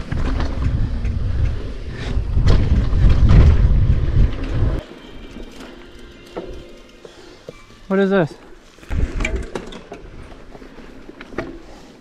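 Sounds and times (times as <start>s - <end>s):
bike tyres rumbling on dirt: 0.0s - 4.8s, 8.7s - 11.9s
wind buffeting microphone: 0.0s - 4.8s
bike rattles and knocks: 0.0s - 7.6s, 8.8s - 11.7s.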